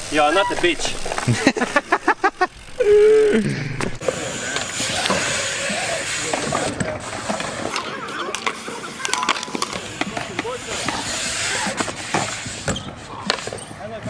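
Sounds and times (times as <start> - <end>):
bike rolling on concrete: 0.0 - 14.0
bike hub ratchet clicking: 0.1 - 6.4
bike clicks and knocks: 3.7 - 13.7.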